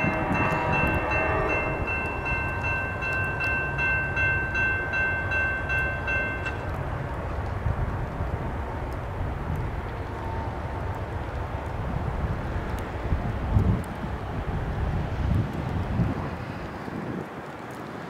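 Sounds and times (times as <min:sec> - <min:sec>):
crossing warning bell ringing: 0:00.0 - 0:06.8
approaching train rumble: 0:00.0 - 0:18.0
wind rumble: 0:00.0 - 0:18.0.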